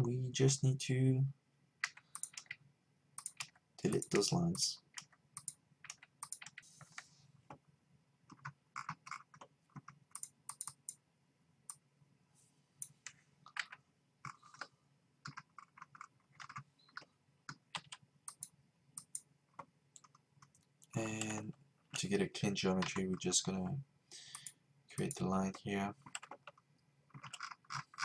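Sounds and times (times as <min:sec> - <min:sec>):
mouse and keyboard clicking: 0:01.8 - 0:02.6, 0:03.2 - 0:04.2, 0:05.0 - 0:06.6, 0:08.3 - 0:11.0.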